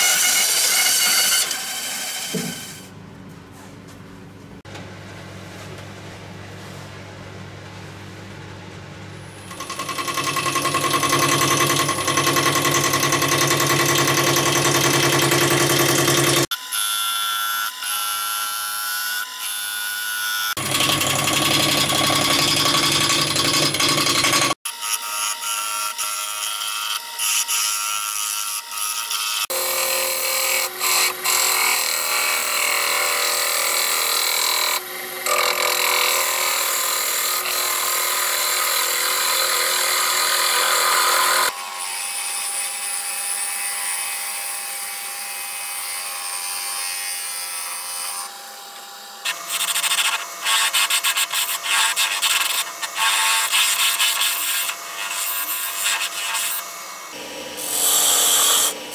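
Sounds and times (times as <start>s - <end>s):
gouge cutting wood on lathe: 0.0s - 2.8s, 9.5s - 16.5s, 20.6s - 24.6s, 29.4s - 44.0s, 57.6s - 58.9s.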